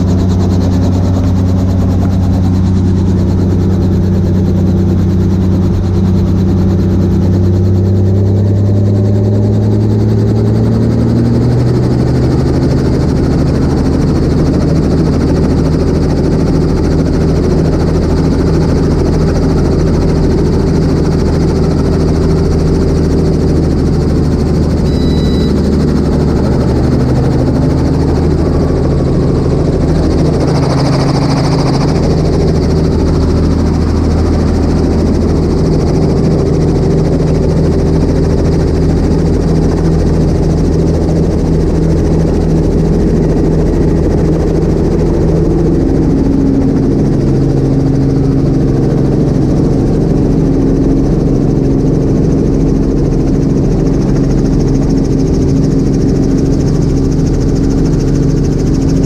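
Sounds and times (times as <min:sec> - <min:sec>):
helicopter engine and rotor drone: 0:00.0 - 0:59.0.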